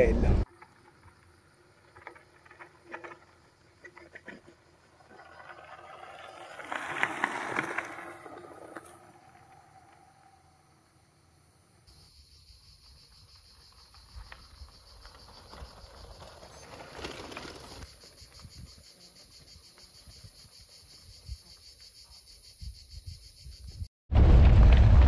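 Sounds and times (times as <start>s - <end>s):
insects buzzing: 0.6s - 23.9s
low rumbling noise: 24.1s - 25.0s.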